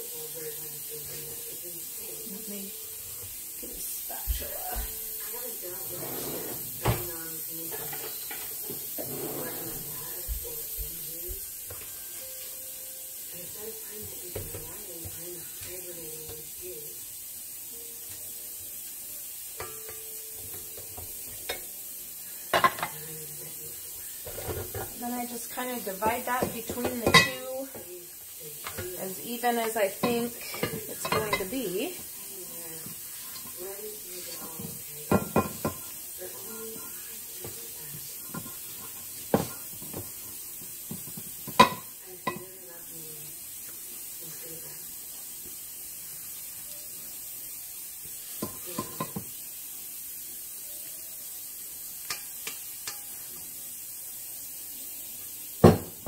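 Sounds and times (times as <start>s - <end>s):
spatula scraping mixing bowl: 5.8s - 6.8s, 9.0s - 10.0s
spatula clacking on beater and bowl: 26.4s - 27.4s, 52.0s - 53.2s.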